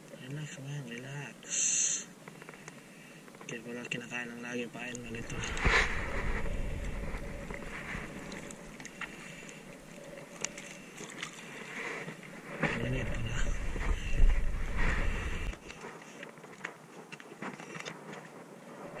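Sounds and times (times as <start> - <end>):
low rumbling buffets: 4.8 - 10.9, 12.2 - 15.7
sea water sloshing and splashing: 5.0 - 16.2.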